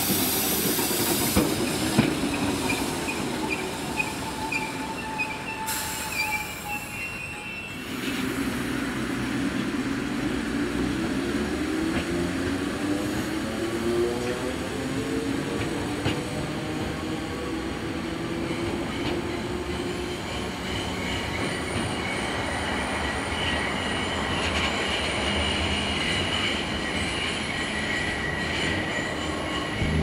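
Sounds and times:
train wheels rumbling on rails: 0.0 - 30.0
high wheel squeal: 2.3 - 8.2, 20.3 - 29.9.

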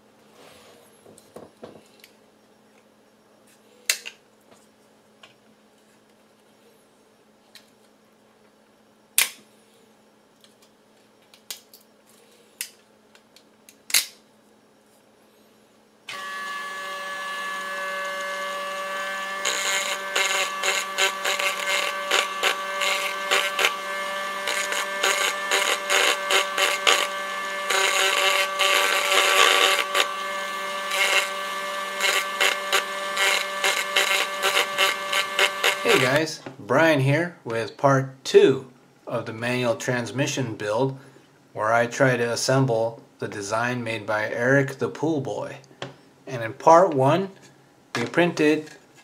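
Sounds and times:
plastic snapping: 12.6 - 14.2
rotary tool grinding plastic: 16.1 - 36.2
rotary tool whine: 16.1 - 36.2.

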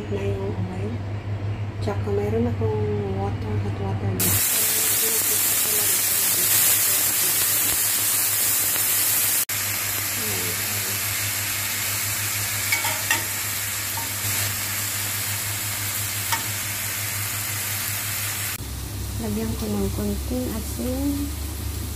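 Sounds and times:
bacon sizzling in a frying pan: 4.2 - 21.9
metal spatula tapping a pan: 12.7 - 13.3.

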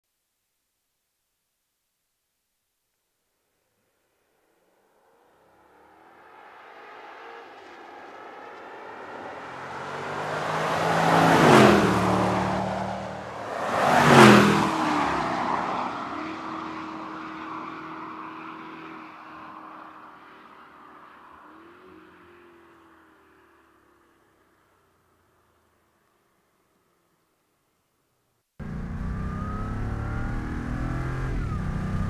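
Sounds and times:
car engine driving past: 5.0 - 24.1, 28.6 - 32.0.

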